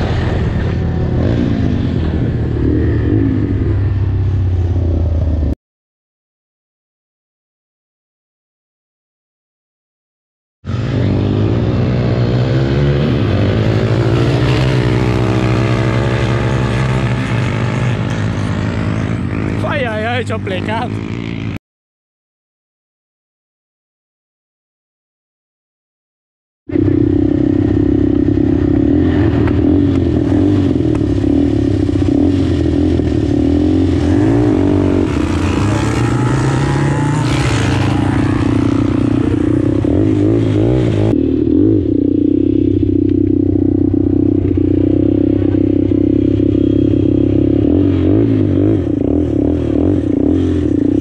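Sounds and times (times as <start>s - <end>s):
quad bike engine revving: 0.0s - 5.4s, 10.7s - 21.6s, 26.7s - 51.0s.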